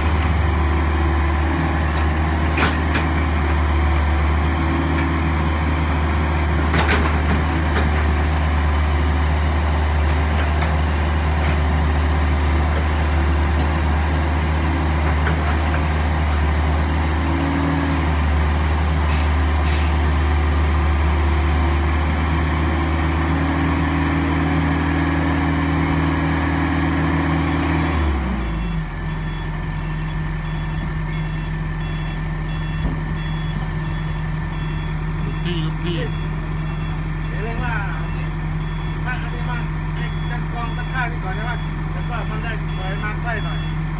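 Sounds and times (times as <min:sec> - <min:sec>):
excavator diesel engine: 0:00.0 - 0:43.9
short warning beeps: 0:28.6 - 0:43.8.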